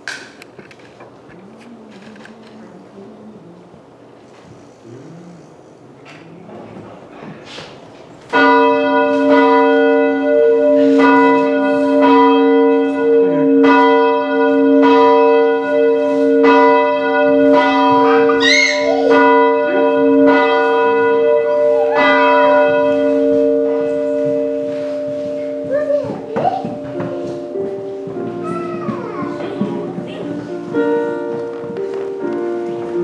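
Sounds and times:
church bell ringing: 8.3 - 33.0.

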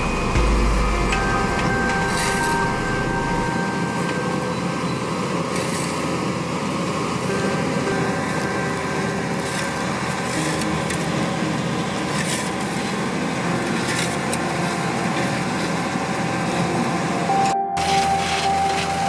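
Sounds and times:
diesel engine running: 0.0 - 19.0
shovel scraping asphalt: 5.5 - 6.0, 9.4 - 11.0, 12.1 - 13.0, 13.7 - 14.4.

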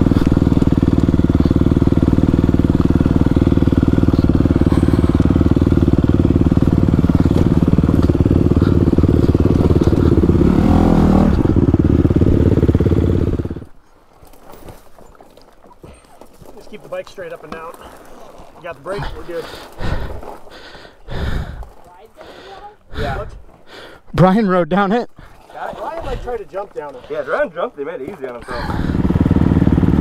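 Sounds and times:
dirt bike engine running: 0.0 - 13.8, 16.3 - 23.2, 28.5 - 30.0.

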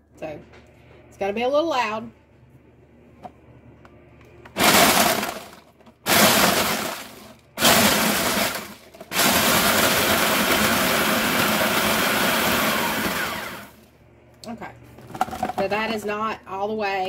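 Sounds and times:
food processor running: 4.6 - 13.9, 15.1 - 15.7.

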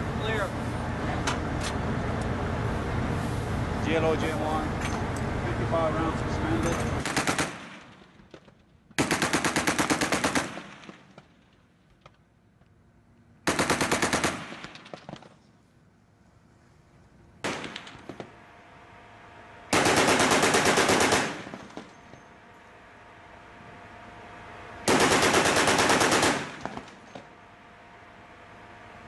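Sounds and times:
chain gun firing bursts: 7.0 - 8.0, 9.0 - 11.3, 13.4 - 15.3, 17.4 - 18.2, 19.7 - 22.0, 24.9 - 27.1.

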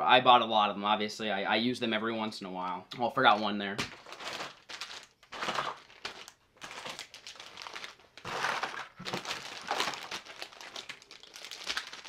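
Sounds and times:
plastic packages crinkling: 3.4 - 12.0.

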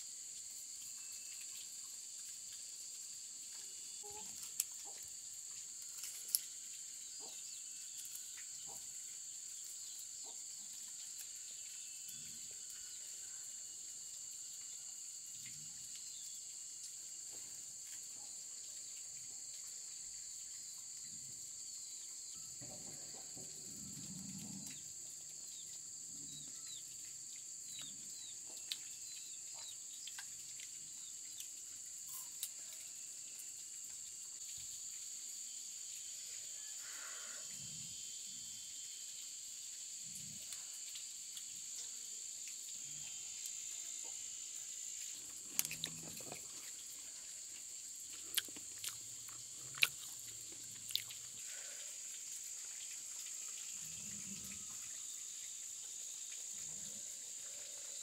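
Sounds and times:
high-pitched insect drone: 34.6 - 41.0.

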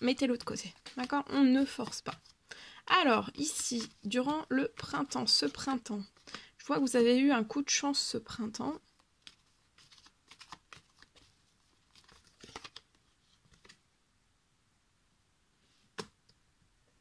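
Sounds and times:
cards shuffling: 0.2 - 2.4, 3.2 - 6.4, 9.0 - 13.8.

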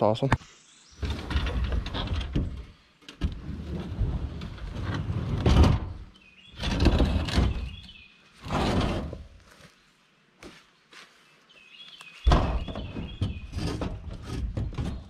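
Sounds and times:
steel cage scraping over concrete: 3.4 - 6.0, 8.4 - 9.3, 12.9 - 15.0.

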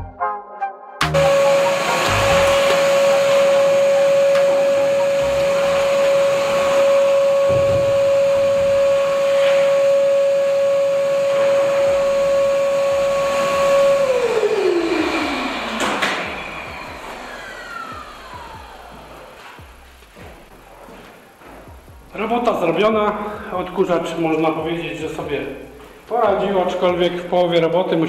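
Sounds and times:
shop vacuum whining: 1.0 - 21.8.

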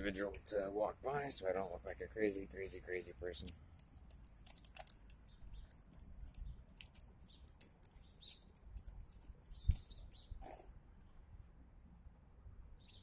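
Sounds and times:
birds chirping: 4.2 - 11.3, 12.8 - 13.0.

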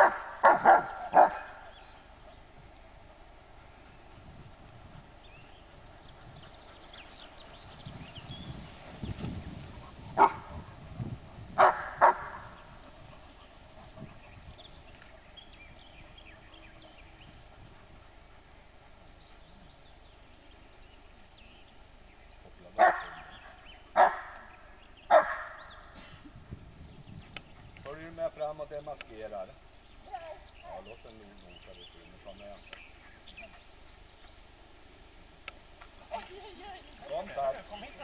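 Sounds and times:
dog barking: 0.0 - 1.8, 10.2 - 10.7, 11.6 - 12.5, 22.8 - 23.4, 24.0 - 24.5, 25.1 - 25.7.

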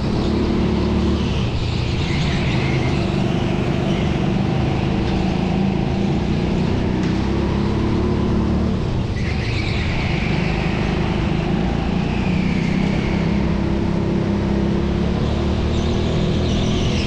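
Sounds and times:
go-kart engine running: 0.0 - 17.0
tyre squeal: 9.0 - 14.2.

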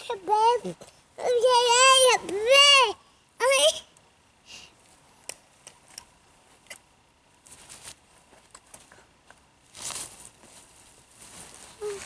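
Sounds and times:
rustling: 4.8 - 12.0.

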